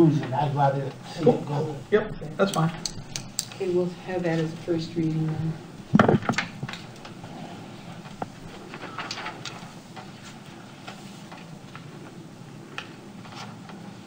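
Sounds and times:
papers shuffling: 4.2s - 14.0s.

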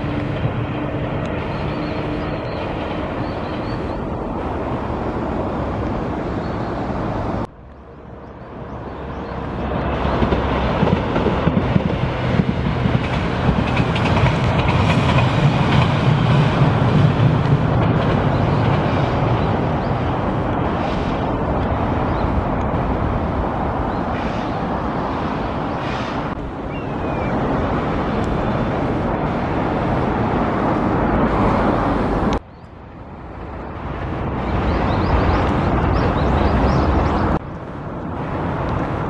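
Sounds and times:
passing electric train rumble: 0.0s - 39.0s
wind buffeting microphone: 8.2s - 39.0s.

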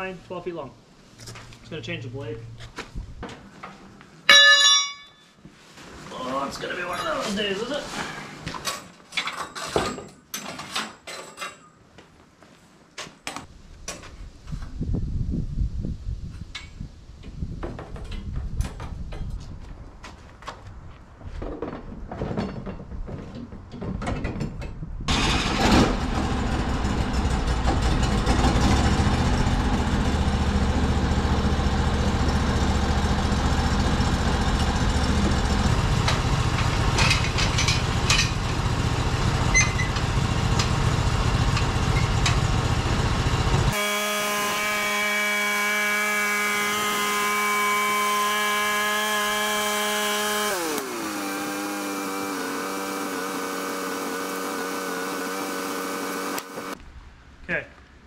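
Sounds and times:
gas engine running: 25.1s - 56.8s
band blade sawing log: 43.7s - 56.8s.

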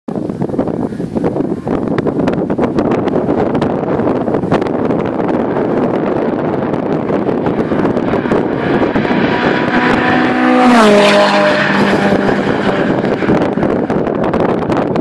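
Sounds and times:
wind buffeting microphone: 0.1s - 15.0s
cars driving past at speed: 5.4s - 14.9s.

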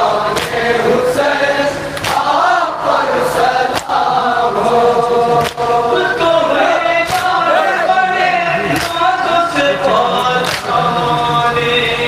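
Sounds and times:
men chanting in unison: 0.0s - 12.0s
chest-beating slaps: 0.4s - 0.6s, 2.0s - 2.3s, 7.1s - 7.4s.

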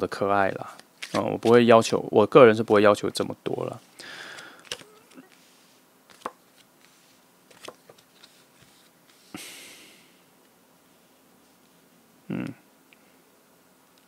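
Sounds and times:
short breathy hiss: 3.9s - 4.8s, 9.2s - 10.2s.

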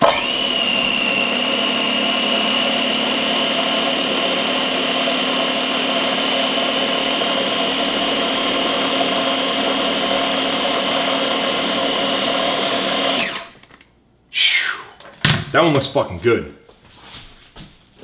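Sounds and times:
food chopper motor whine: 0.0s - 13.6s.

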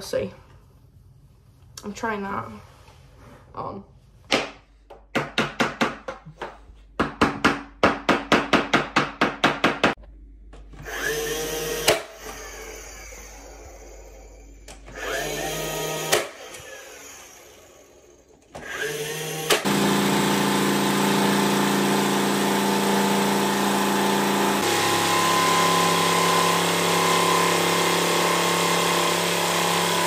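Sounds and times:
cordless power tool spinning: 10.8s - 30.0s.

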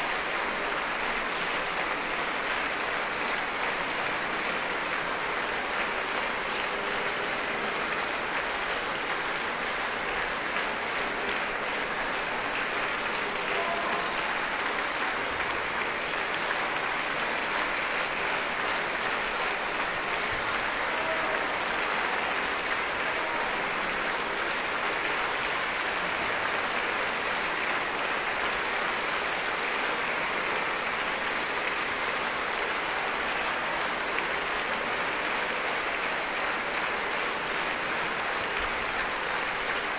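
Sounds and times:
audience applauding: 0.0s - 39.9s.

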